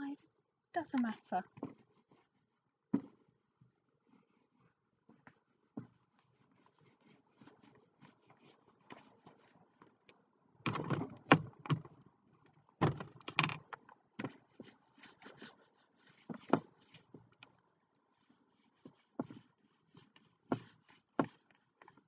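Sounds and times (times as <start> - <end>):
paint roller rubbing: 14.6 - 17.2.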